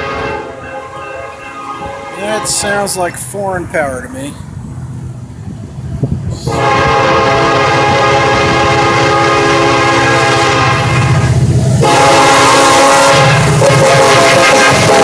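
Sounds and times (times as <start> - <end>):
locomotive air horn chord: 0.0 - 3.0, 6.4 - 15.0
diesel engines rumbling: 0.0 - 15.0.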